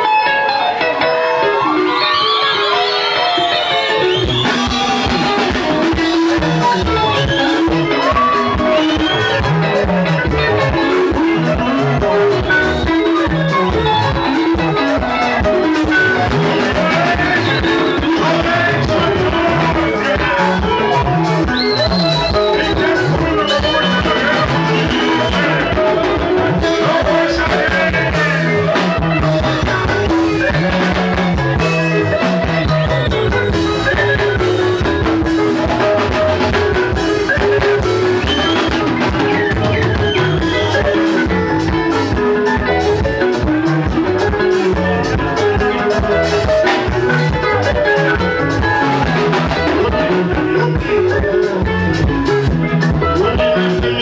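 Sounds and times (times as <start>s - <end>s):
live rumba band playing: 0.0s - 54.0s.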